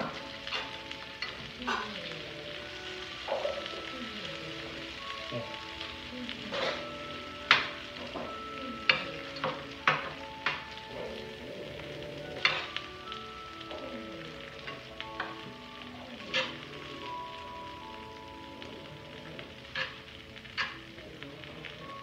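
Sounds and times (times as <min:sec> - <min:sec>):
faint crackle: 0:00.0 - 0:22.0
soft background music: 0:00.0 - 0:22.0
spoon clinking on plates: 0:06.5 - 0:11.0, 0:12.4 - 0:12.8.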